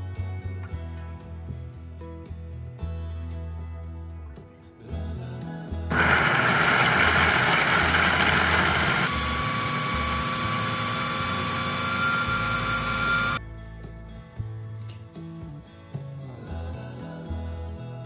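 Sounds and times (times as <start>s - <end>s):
food processor motor running: 5.9s - 13.4s.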